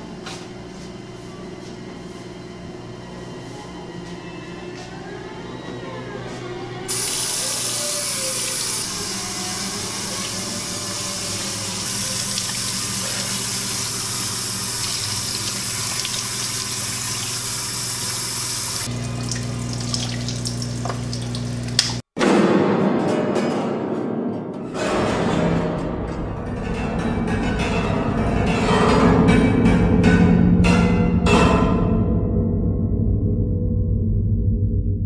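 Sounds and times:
hands washing under water: 6.9s - 22.0s
tap water running into sink: 6.9s - 22.0s
low hum: 31.7s - 35.0s.

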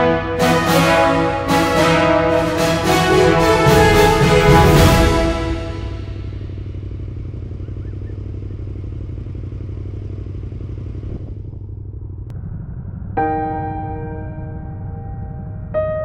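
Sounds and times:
piano chord: 0.0s - 6.7s, 13.2s - 16.0s
motorcycle engine rumbling: 3.2s - 16.0s
road and wind noise: 5.8s - 16.0s.

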